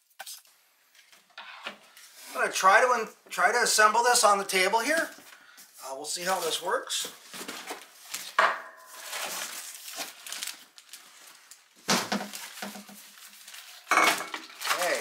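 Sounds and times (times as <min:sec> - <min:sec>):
plastic wrapping rustling: 0:04.5 - 0:15.0
cardboard packaging handled: 0:06.3 - 0:15.0.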